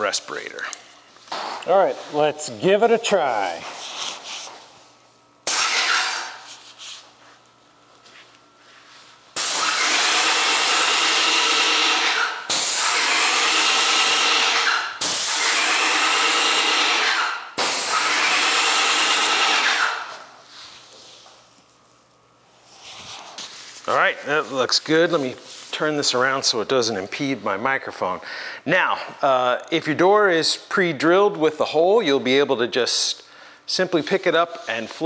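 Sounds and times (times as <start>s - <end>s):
paint sprayer hissing: 9.4s - 20.4s.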